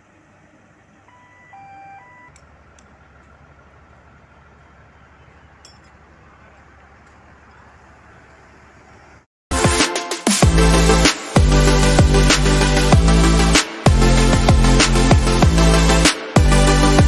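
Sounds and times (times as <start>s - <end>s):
construction machinery rumbling: 0.0s - 9.3s
three-tone electronic beep: 1.1s - 2.3s.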